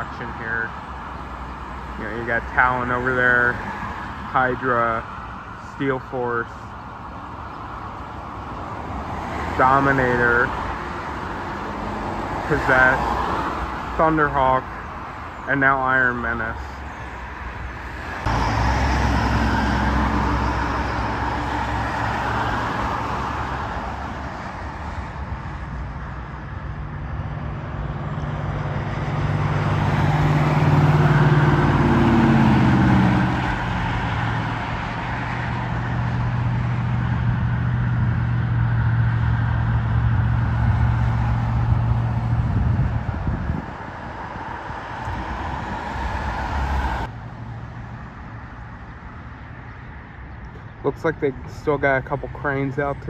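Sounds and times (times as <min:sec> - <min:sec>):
road traffic hum: 0:00.0 - 0:53.0
truck driving past: 0:16.6 - 0:47.8.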